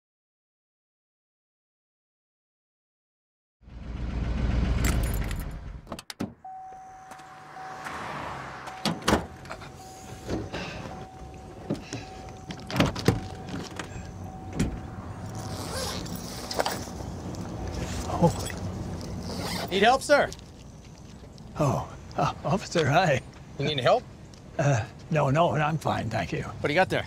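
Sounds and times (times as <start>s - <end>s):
low vehicle rumble: 3.6s - 19.8s
thin steady electronic tone: 6.4s - 15.5s
car doors knocking and clunking: 8.6s - 15.0s.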